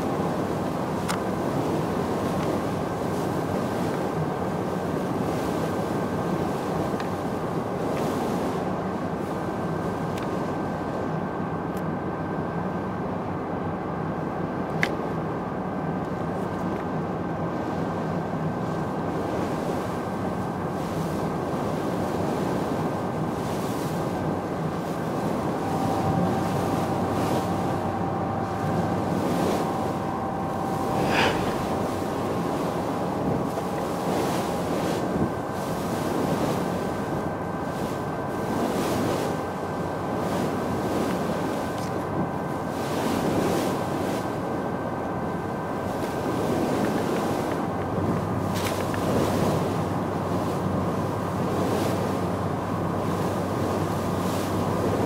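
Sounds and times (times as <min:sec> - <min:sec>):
boat engine drone: 0:00.0 - 0:55.0
thin steady whine: 0:00.0 - 0:55.0
wind: 0:00.0 - 0:55.0
water noise: 0:23.5 - 0:38.5
brief hiss: 0:30.9 - 0:32.0.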